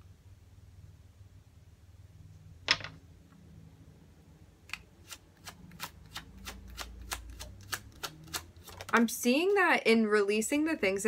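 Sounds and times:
cards snapping: 4.7 - 9.1
cards being shuffled: 4.7 - 9.6.

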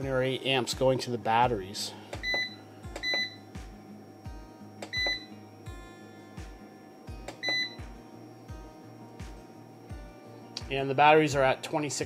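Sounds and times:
background music with steady beat: 0.0 - 12.0
short high button beeps: 2.2 - 3.4, 4.9 - 5.3, 7.4 - 7.8.

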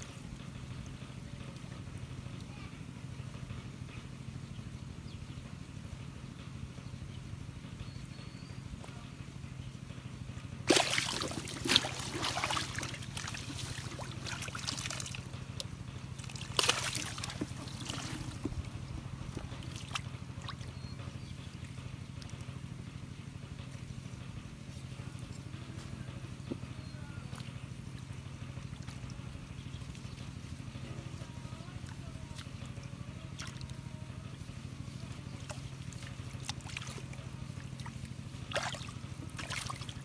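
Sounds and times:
steady low hum: 0.0 - 40.0
water splashing in a pool: 10.6 - 20.8, 28.6 - 34.4, 35.0 - 40.0.

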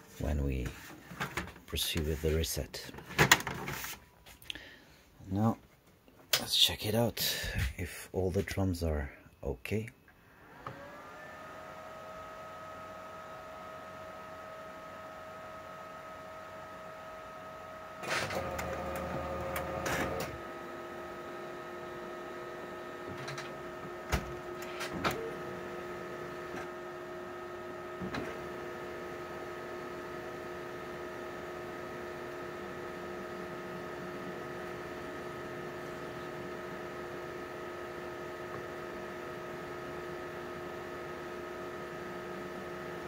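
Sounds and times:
steady printer hum: 10.8 - 43.0
printer mechanism running: 18.0 - 43.0.

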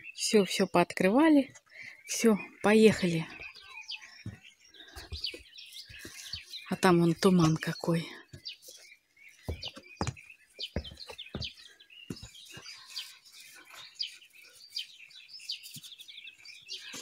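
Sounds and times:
small birds chirping: 0.0 - 17.0
soft low thumps: 9.5 - 12.7.

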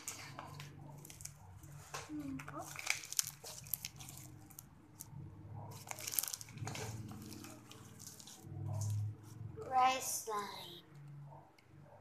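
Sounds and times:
slime with rice crackling: 0.0 - 5.1, 5.7 - 9.4.

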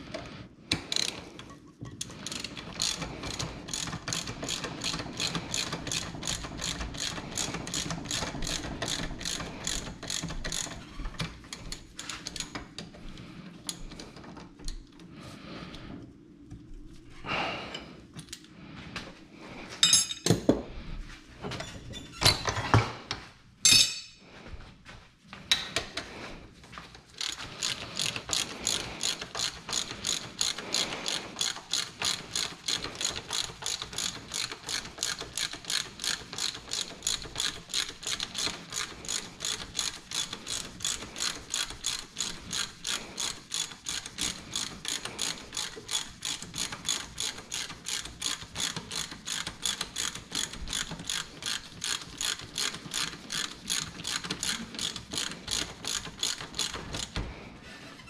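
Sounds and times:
ratchet wrench clicking: 0.9 - 1.5, 2.2 - 10.8, 27.2 - 57.2.

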